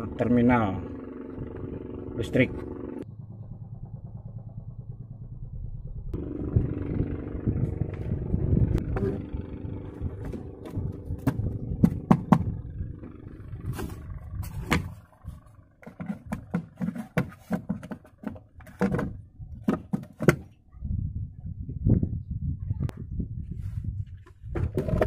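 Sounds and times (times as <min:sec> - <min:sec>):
low rumble: 0:00.0 - 0:16.6.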